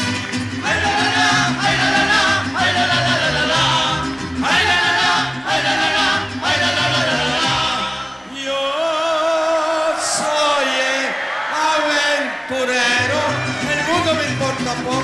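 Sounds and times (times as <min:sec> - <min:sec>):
bass line: 0:00.0 - 0:08.4, 0:13.0 - 0:15.0
guitars: 0:00.0 - 0:08.5, 0:12.4 - 0:15.0.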